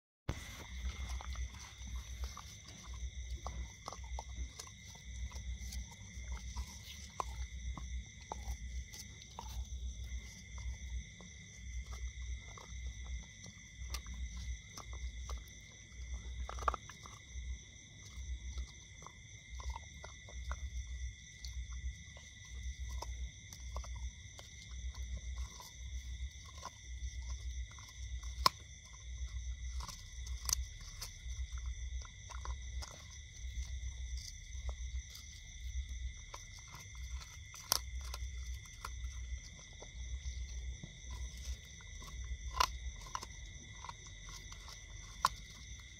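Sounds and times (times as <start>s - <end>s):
dog crunching on a bone: 0.3s - 45.9s
high insect drone: 0.3s - 45.9s
bone cracking: 25.2s - 45.9s.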